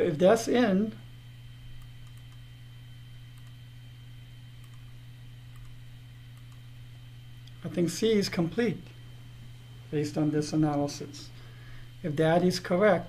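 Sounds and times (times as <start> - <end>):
low electrical hum: 0.0 - 13.0
computer mouse clicks: 1.8 - 2.4, 3.4 - 3.6, 4.6 - 5.8, 6.4 - 6.6.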